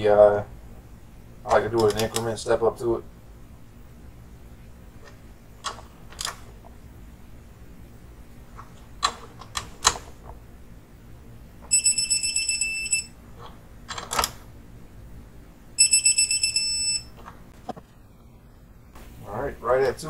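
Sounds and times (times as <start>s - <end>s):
torque wrench beeping: 11.7s - 13.1s, 15.8s - 17.1s.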